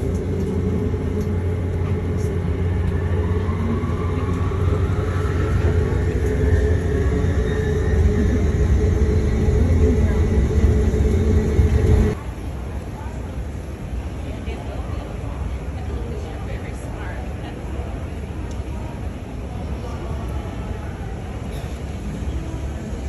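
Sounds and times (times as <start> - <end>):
motor whine rising: 0.0 - 12.2
shuttle train rumbling: 0.0 - 23.0.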